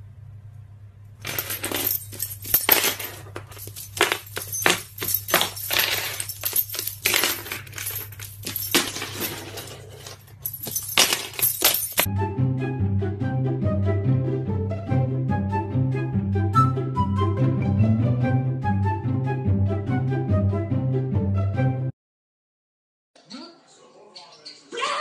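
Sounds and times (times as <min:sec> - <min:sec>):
keys jangling on wooden floor: 0:01.2 - 0:12.1.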